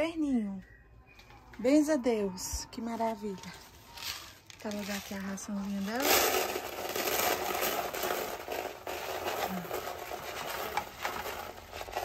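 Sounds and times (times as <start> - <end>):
grains poured into plastic bucket: 4.0 - 12.0.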